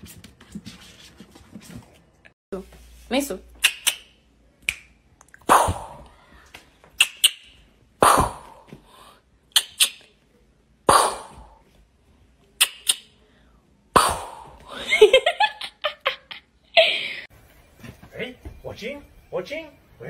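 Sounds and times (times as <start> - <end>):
kitten hissing and spitting: 5.5 - 6.0, 8.0 - 8.7, 10.9 - 11.6, 14.0 - 14.6.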